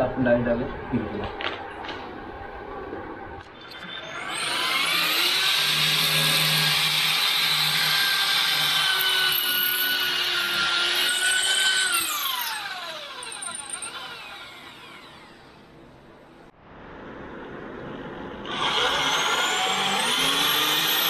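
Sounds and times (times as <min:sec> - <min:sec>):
electric drill boring: 0:03.6 - 0:15.7, 0:18.5 - 0:21.0.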